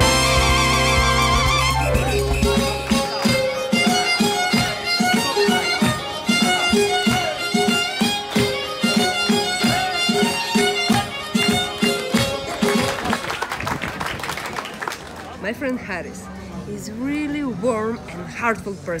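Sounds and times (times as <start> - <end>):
folk dance music with fiddle: 0.0 - 13.4.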